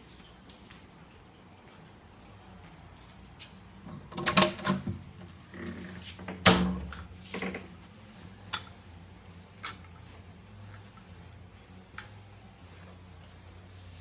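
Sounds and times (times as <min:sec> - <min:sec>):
door creaking: 0:03.9 - 0:07.7.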